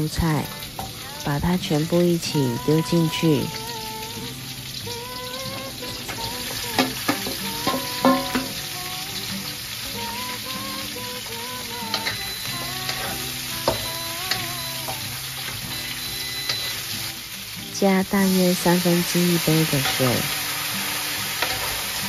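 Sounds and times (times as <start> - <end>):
vegetables sizzling in a wok: 0.0 - 22.0
spatula clacking on pan: 6.0 - 8.6, 12.9 - 13.9, 21.3 - 21.9.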